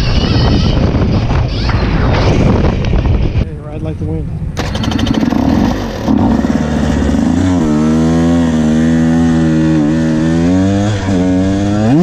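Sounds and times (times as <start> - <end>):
two-stroke dirt bike engine revving: 4.6 - 12.0.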